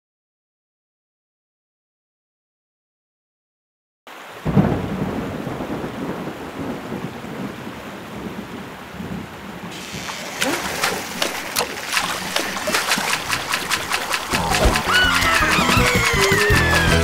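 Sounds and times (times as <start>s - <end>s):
heavy rain: 4.1s - 17.0s
thunder clap: 4.4s - 17.0s
sharp drips and splashes: 9.7s - 17.0s.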